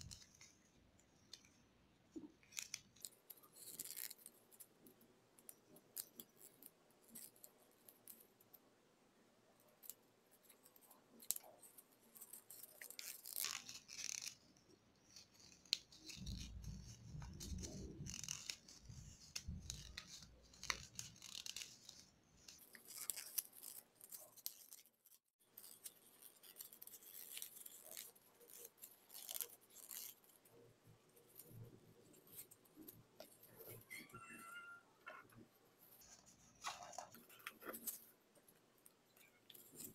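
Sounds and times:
paper rustling and crinkling: 35.1 - 38.5.

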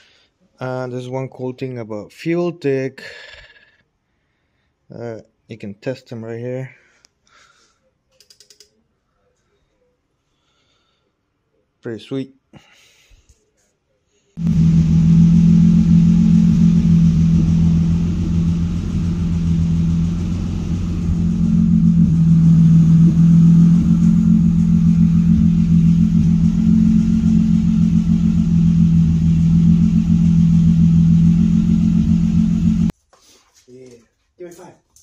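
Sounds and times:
car engine idling: 14.4 - 32.9.

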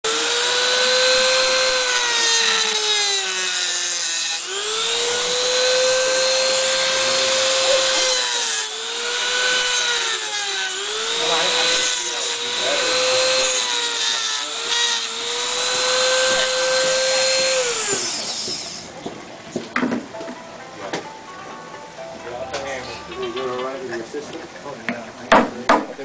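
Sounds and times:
rotary tool grinding rock: 0.0 - 19.0.

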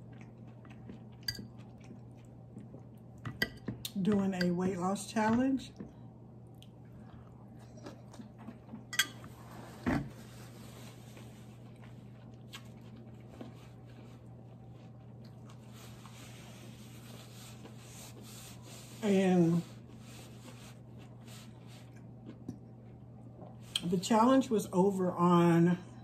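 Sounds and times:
chewing and mouth noises: 0.0 - 4.0, 5.7 - 9.0, 11.1 - 16.2, 20.8 - 23.9.

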